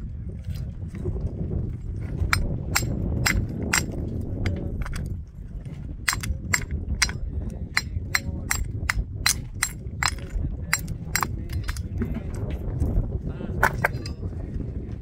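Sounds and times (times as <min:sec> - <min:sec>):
low rumble: 0:00.0 - 0:15.0
hammer striking stone: 0:02.3 - 0:04.0, 0:06.1 - 0:07.2, 0:07.8 - 0:11.8.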